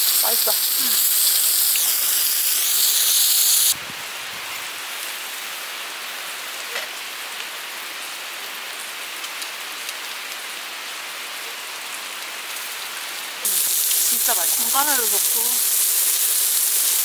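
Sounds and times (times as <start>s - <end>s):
meat sizzling on a grill plate: 0.0s - 3.8s, 13.4s - 17.0s.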